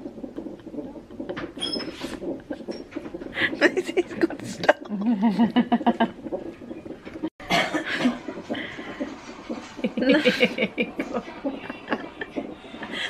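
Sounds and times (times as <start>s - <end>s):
woman giggling: 3.4s - 6.2s, 9.8s - 13.0s.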